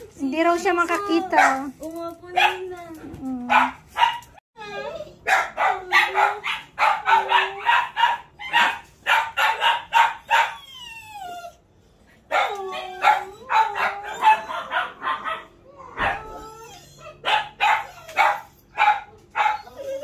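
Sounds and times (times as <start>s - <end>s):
dog whining: 3.0s - 8.8s, 10.2s - 11.7s, 12.3s - 20.0s
dog yelping: 3.5s - 11.6s, 12.3s - 20.0s.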